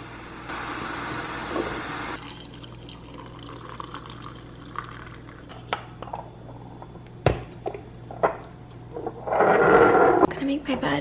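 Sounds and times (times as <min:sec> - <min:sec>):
water pouring into glass cup: 0:02.2 - 0:05.6.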